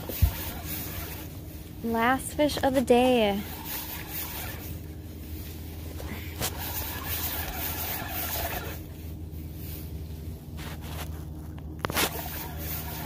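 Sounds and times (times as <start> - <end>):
fishing reel whirring: 0.0 - 1.3, 3.4 - 4.8, 6.4 - 8.9, 12.1 - 13.0
steady low hum: 0.0 - 13.0.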